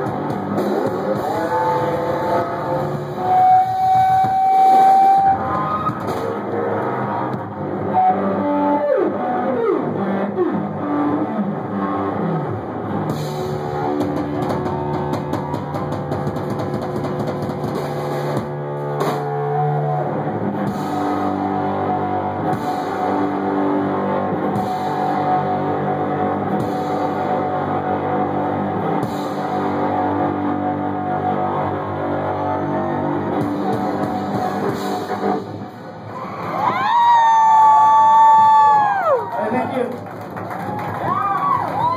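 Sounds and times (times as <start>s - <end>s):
drum kit: 0.0s - 7.8s, 12.9s - 19.8s, 20.5s - 27.9s, 28.5s - 30.3s, 33.2s - 39.3s
distorted electric guitar: 0.0s - 40.0s.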